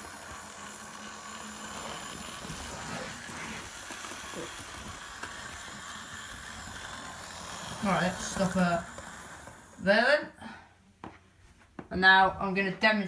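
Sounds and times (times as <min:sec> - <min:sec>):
model train motor whir: 0:00.0 - 0:10.2.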